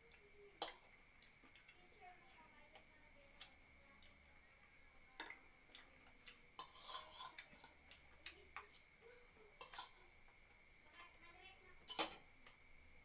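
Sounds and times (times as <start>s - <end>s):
spoon scraping ceramic bowl: 6.6s - 7.8s, 9.6s - 10.1s.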